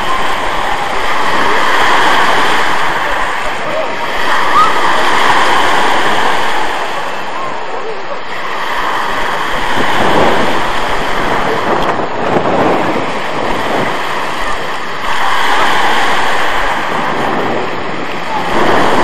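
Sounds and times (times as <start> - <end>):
wind buffeting microphone: 0.0 - 19.0
sea waves breaking on pebbles: 8.4 - 19.0.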